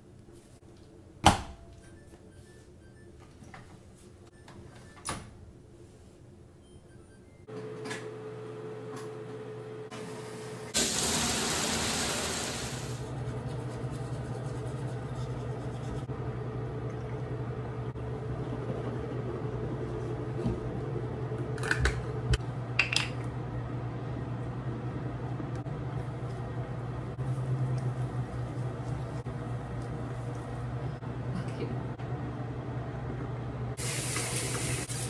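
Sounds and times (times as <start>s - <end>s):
toilet flushing: 9.9s - 13.1s, 33.8s - 35.0s
steady low hum: 13.0s - 33.8s.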